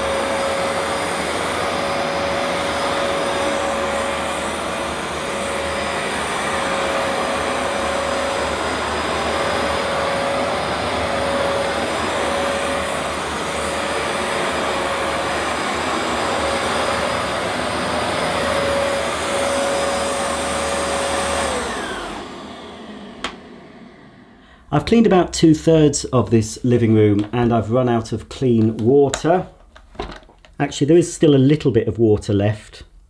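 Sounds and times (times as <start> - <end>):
carpet washer motor whine: 0.0 - 25.0.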